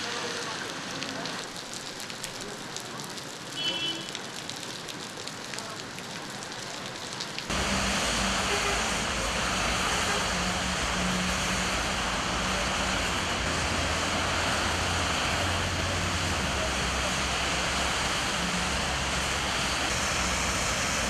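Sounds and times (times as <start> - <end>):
heavy rain rushing: 0.0 - 21.0
rain pattering: 0.0 - 21.0
road traffic rumble: 0.0 - 21.0.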